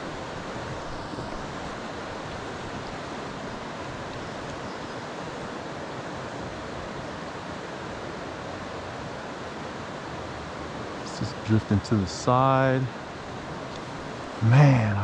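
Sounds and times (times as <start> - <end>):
river rushing over rocks: 0.0 - 11.5.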